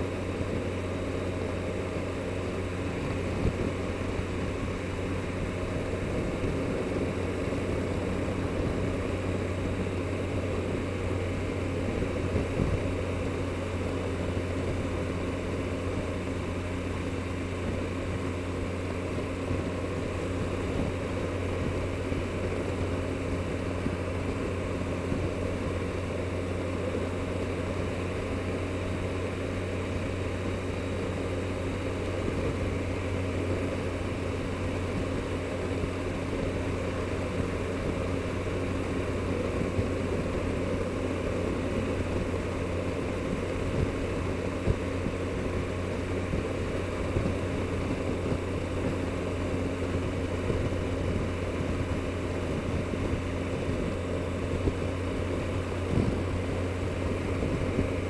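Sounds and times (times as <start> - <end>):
motorcycle engine running: 0.0 - 58.0
wind and road noise: 0.0 - 58.0.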